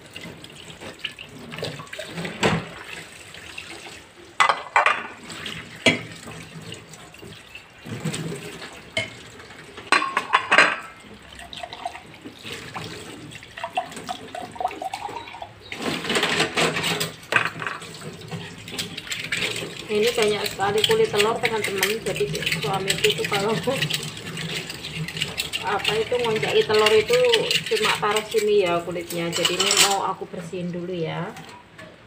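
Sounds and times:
tap water splashing into sink: 0:00.0 - 0:27.8
dishes clinking: 0:04.4 - 0:05.2, 0:09.9 - 0:11.0, 0:29.1 - 0:30.1.

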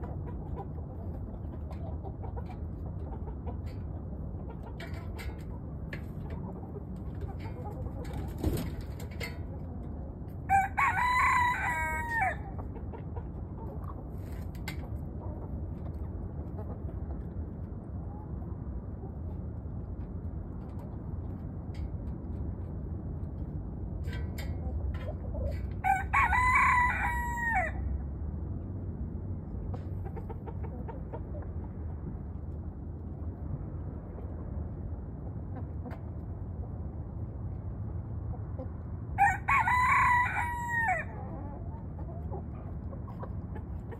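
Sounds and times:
rooster crowing: 0:10.5 - 0:12.5, 0:25.8 - 0:27.9, 0:39.2 - 0:41.2.

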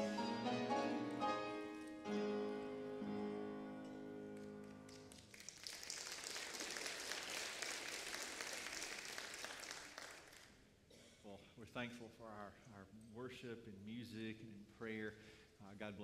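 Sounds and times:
instrumental music: 0:00.0 - 0:05.2
congregation applauding: 0:04.2 - 0:10.6.

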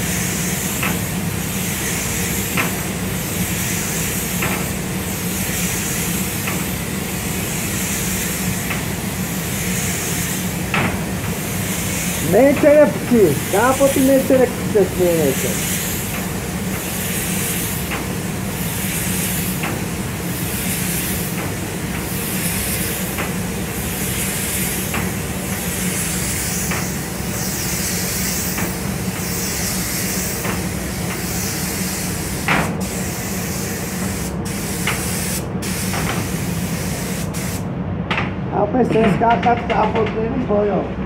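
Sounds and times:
paint spray gun hissing: 0:00.0 - 0:37.7.

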